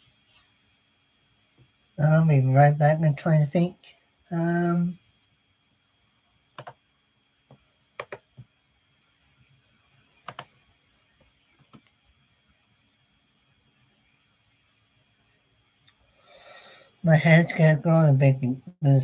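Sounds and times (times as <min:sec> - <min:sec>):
computer keyboard key clicks: 0:06.6 - 0:06.8, 0:08.0 - 0:08.2, 0:10.3 - 0:10.5, 0:11.5 - 0:11.9.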